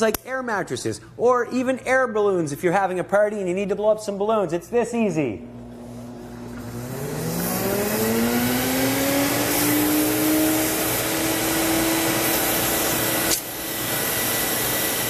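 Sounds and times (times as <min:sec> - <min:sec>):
vacuum cleaner motor whine: 0:05.4 - 0:15.0.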